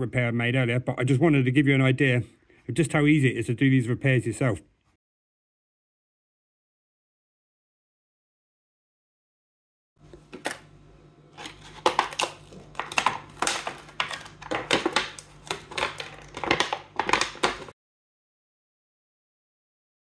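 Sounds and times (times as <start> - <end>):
plastic sheet crinkling: 11.4 - 17.8.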